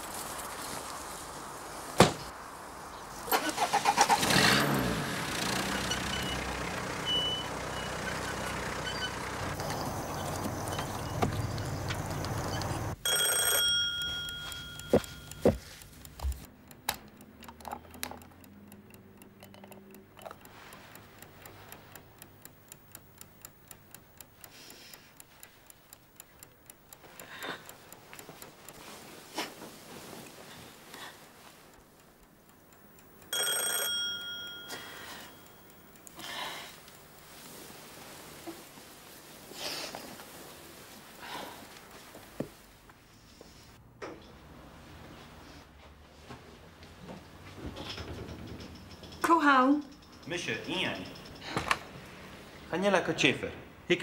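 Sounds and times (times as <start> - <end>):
clock ticking: 11.9 - 39.2, 48.8 - 53.4
alarm clock bell ringing: 13.0 - 15.7, 33.2 - 36.5
clicks: 13.6 - 38.6.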